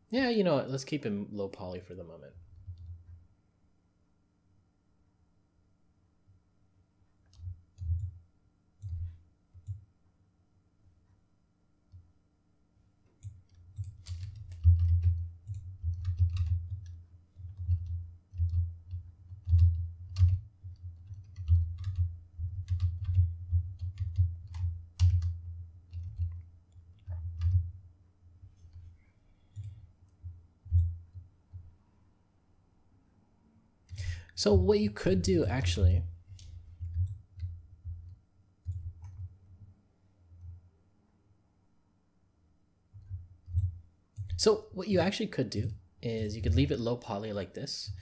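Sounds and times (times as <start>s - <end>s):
computer mouse clicks: 7.2s - 8.2s, 8.8s - 9.8s, 13.2s - 27.7s, 28.6s - 31.7s, 36.3s - 39.3s, 43.0s - 44.4s
keyboard key presses: 13.2s - 26.4s.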